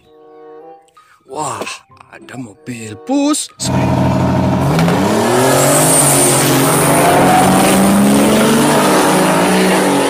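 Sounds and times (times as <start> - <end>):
diesel bus engines at full throttle: 3.6 - 10.0.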